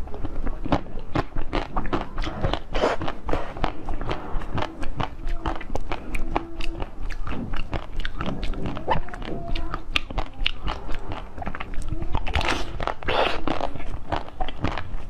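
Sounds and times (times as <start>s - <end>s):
biting and chewing: 0.0s - 15.0s
wet sucking noise: 2.2s - 4.6s, 12.3s - 13.7s.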